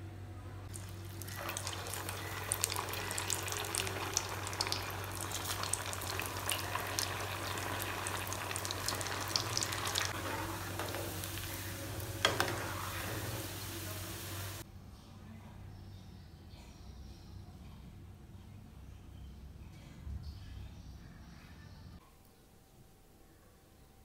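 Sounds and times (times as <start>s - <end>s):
food sizzling and popping in oil: 0.7s - 14.6s.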